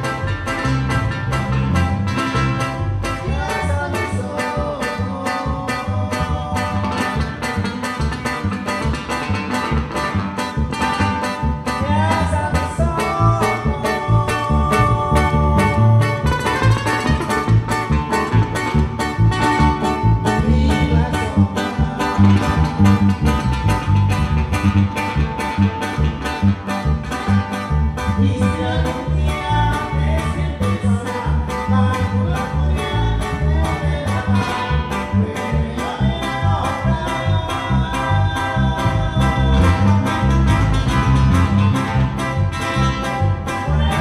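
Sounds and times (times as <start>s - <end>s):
plucked guitars and bass: 0.0s - 44.0s
person singing: 3.1s - 7.8s, 11.6s - 23.9s, 27.9s - 40.7s, 43.4s - 44.0s.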